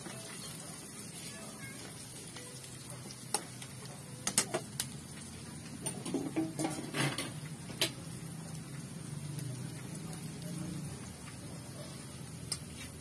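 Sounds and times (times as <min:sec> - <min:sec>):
metal cookware clinking: 0:05.8 - 0:08.0.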